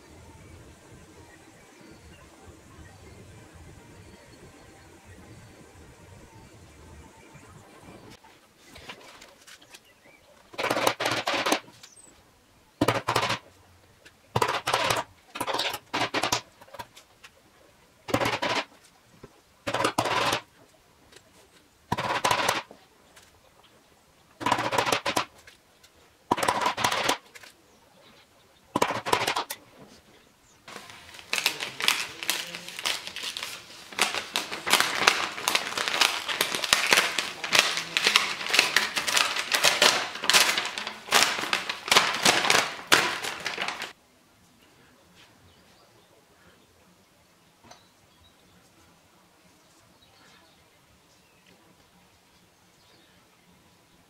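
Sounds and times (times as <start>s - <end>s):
paper crackling and tearing: 10.5s - 11.6s, 14.4s - 16.9s, 30.7s - 44.0s.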